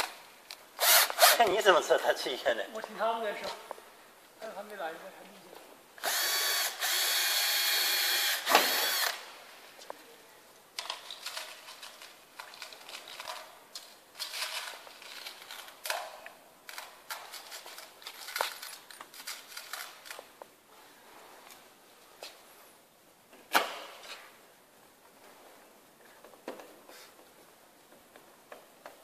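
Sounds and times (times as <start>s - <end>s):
cordless drill running: 0.8s - 1.4s, 6.0s - 9.2s
clicks and rattles of parts handled: 10.8s - 20.5s.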